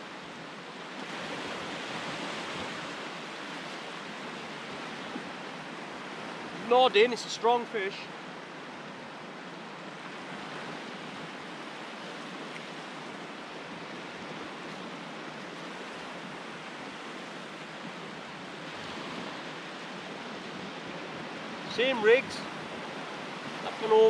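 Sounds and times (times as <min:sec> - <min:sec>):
surf breaking on shore: 0:00.8 - 0:08.3, 0:09.1 - 0:24.0.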